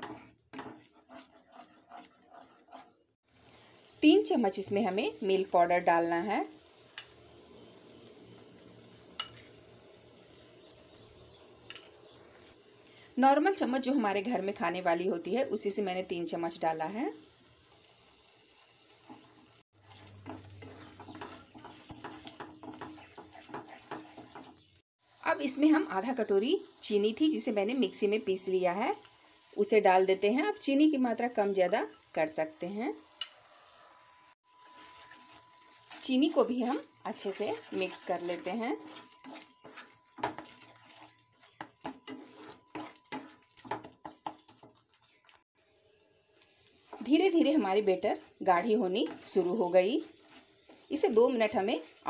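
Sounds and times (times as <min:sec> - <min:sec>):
spatula scraping thick batter in pan: 0:00.0 - 0:03.0, 0:19.0 - 0:24.7, 0:34.6 - 0:44.9.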